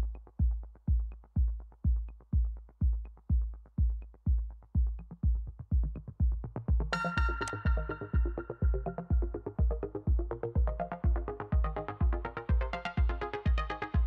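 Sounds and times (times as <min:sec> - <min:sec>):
deep kick drum: 0:00.0 - 0:14.0
electronic music: 0:00.0 - 0:14.0.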